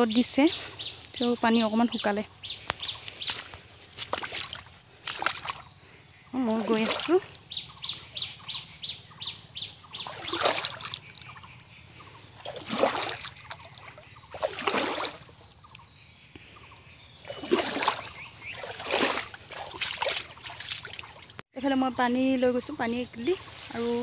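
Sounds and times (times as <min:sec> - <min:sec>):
footsteps splashing in water: 0:02.6 - 0:05.8, 0:06.5 - 0:07.4, 0:09.9 - 0:11.5, 0:12.4 - 0:15.8, 0:17.2 - 0:21.4.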